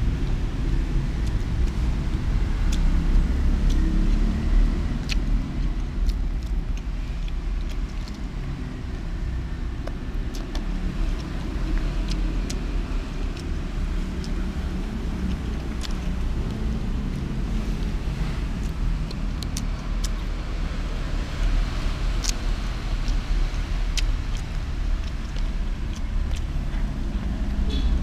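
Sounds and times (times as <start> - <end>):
low outdoor rumble: 0.0 - 28.0
chopsticks clicking: 3.5 - 4.2.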